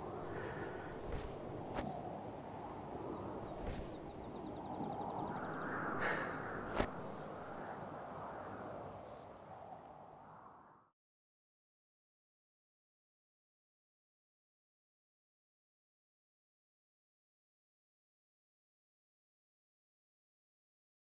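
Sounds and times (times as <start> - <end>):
faint rustles: 0.0 - 7.8
insects droning: 0.0 - 10.9.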